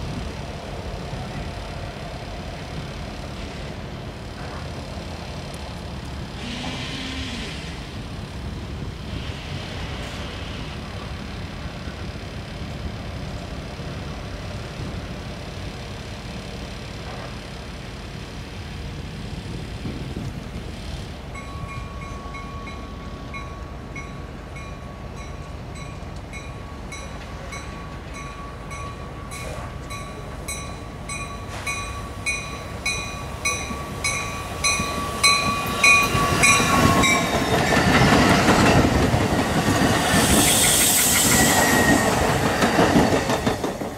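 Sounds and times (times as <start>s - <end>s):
train high whine: 0.0s - 43.9s
train bell ringing: 21.3s - 38.9s
train wheels clattering: 25.3s - 43.9s.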